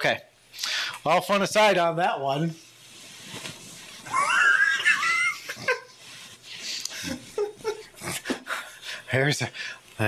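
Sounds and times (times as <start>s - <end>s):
man giggling: 4.1s - 6.1s, 6.9s - 8.6s
faint laughing breaths: 5.0s - 9.1s.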